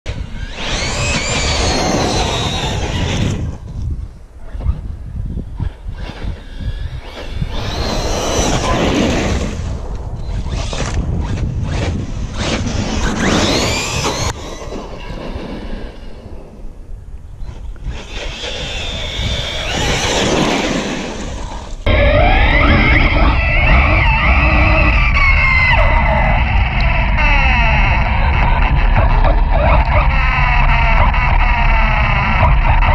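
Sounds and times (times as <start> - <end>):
rc car motor whining: 0.1 - 3.6, 6.2 - 9.6, 12.4 - 16.0, 17.5 - 32.9
wind rumble on microphone: 0.1 - 32.9.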